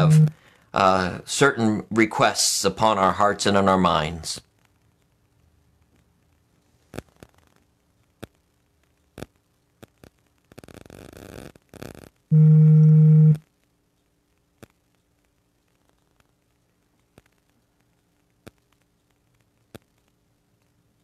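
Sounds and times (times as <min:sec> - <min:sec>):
loud low buzzing tone: 0:00.0 - 0:00.4, 0:12.3 - 0:13.4.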